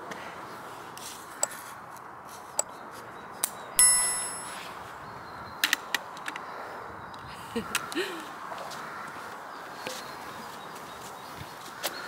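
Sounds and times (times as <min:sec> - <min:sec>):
bright metallic ding: 0:03.8 - 0:04.7.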